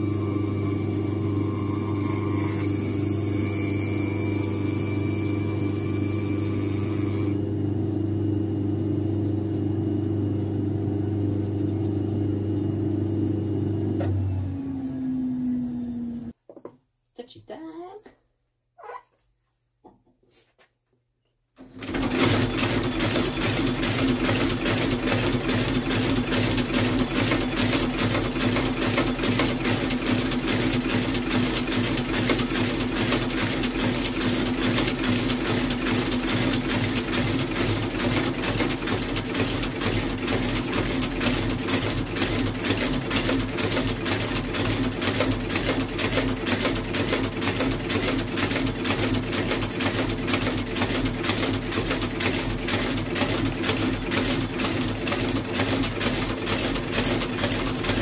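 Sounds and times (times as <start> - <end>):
stitching machine clatter: 21.6 - 58.0.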